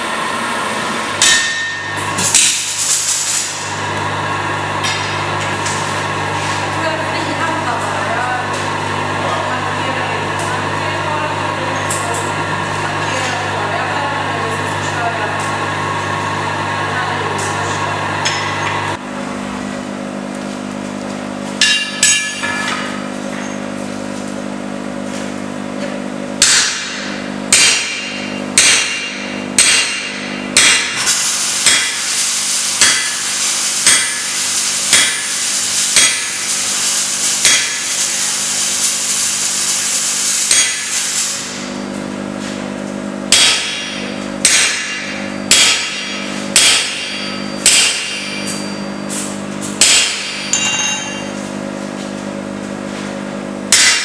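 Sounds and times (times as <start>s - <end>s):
steady hum: 0.0s - 24.4s, 25.1s - 54.0s
hammer striking steel on anvil: 1.2s - 2.8s, 4.8s - 5.8s, 21.6s - 23.6s, 26.4s - 32.1s, 32.8s - 35.3s, 36.0s - 36.4s, 37.4s - 38.0s, 40.5s - 41.0s, 43.3s - 51.5s, 53.7s - 54.0s.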